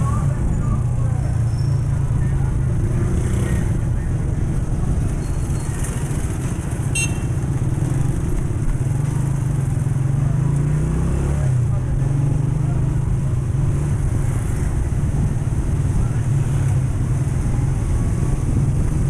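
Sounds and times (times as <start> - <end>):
motorcycle engine running: 2.6 - 10.5.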